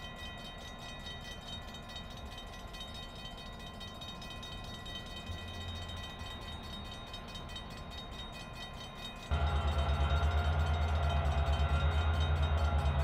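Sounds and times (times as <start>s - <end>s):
faint steady whine: 0.0s - 13.0s
diesel locomotive rumble: 8.8s - 13.0s.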